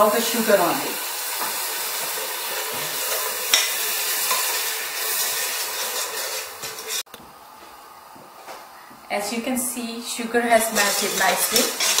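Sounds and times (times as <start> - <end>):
sugar and butter sizzling in pot: 0.0 - 7.1, 10.1 - 12.0
metal spatula scraping pot: 4.2 - 7.1, 10.5 - 12.0.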